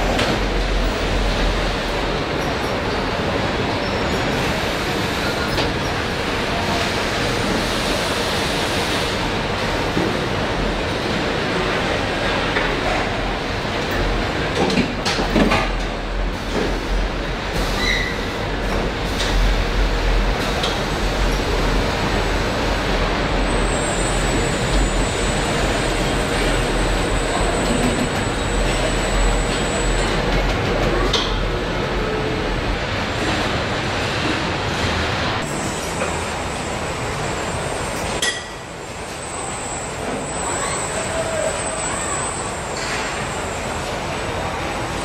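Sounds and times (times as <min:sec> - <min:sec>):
brief high squeal: 0:17.8 - 0:18.2, 0:39.3 - 0:42.6.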